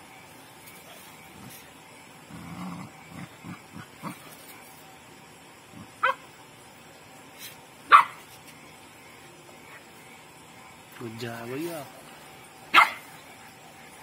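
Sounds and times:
dog barking: 6.0s - 6.2s, 7.9s - 8.2s, 12.7s - 13.1s.

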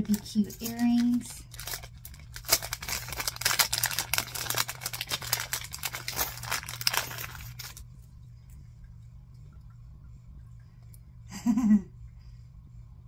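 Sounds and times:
plastic packet crinkling: 0.0s - 7.8s.

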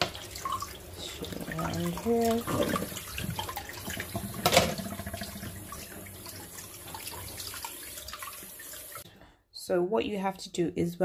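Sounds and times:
water sloshing in sink: 0.0s - 9.0s.

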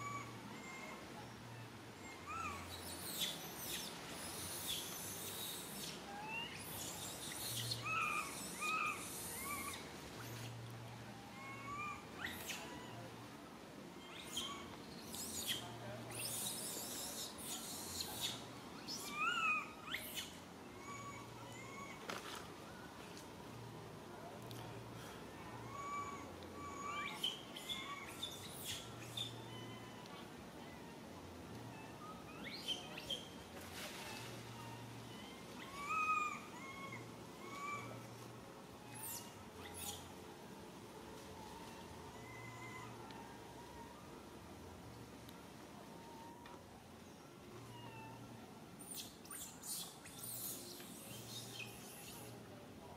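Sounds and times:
thin whistly calls: 0.0s - 13.1s, 14.0s - 23.3s, 25.0s - 31.0s, 31.7s - 40.3s, 41.3s - 44.2s, 45.9s - 52.6s
wavering coo: 0.0s - 13.3s, 14.0s - 22.5s, 24.6s - 33.0s, 33.8s - 40.1s, 41.0s - 44.5s
baby monkey crying: 2.0s - 3.9s, 4.5s - 10.4s, 11.2s - 13.0s, 14.0s - 22.0s, 25.6s - 30.1s, 34.7s - 38.2s, 38.8s - 40.0s.

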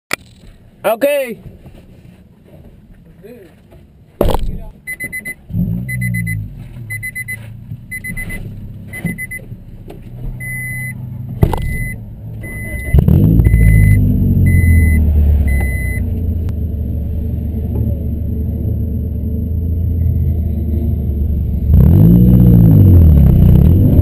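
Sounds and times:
car engine starting and idling: 4.3s - 24.0s
car warning chime beeping: 4.8s - 9.5s, 10.4s - 16.1s.

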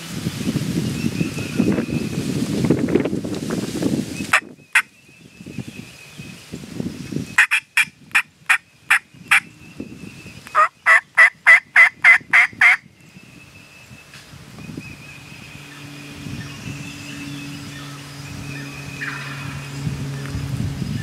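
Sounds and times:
turkey box call yelps: 7.4s - 7.9s, 10.5s - 12.8s.

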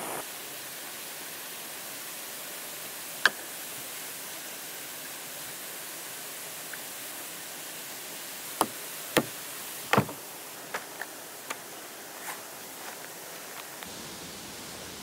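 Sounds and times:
waterfall hissing: 0.0s - 15.0s
camping gear knocking on wooden bench: 8.6s - 10.2s.

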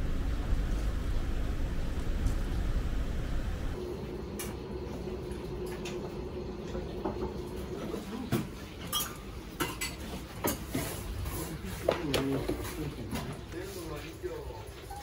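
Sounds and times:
steady room hum: 0.0s - 14.6s
dishes and cutlery clinking: 8.3s - 13.5s.

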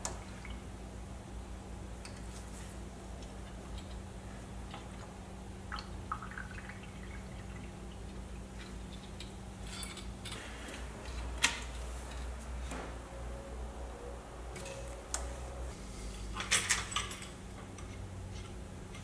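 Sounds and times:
low steady hum: 0.0s - 19.0s
fluid dripping and trickling: 3.2s - 9.3s.

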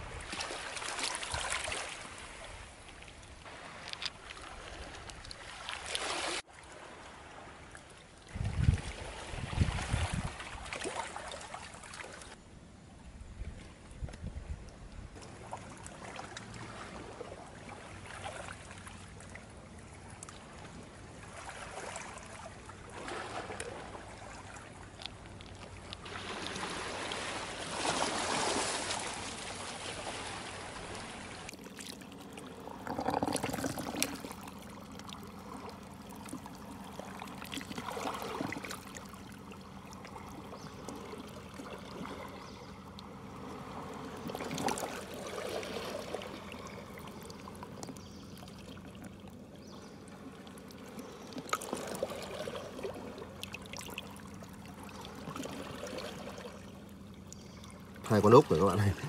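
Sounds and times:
seawater washing along shore: 15.1s - 59.0s.

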